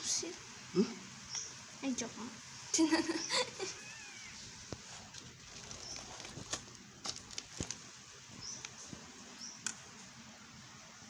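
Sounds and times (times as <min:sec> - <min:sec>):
kittens squeaking: 0:03.0 - 0:04.6.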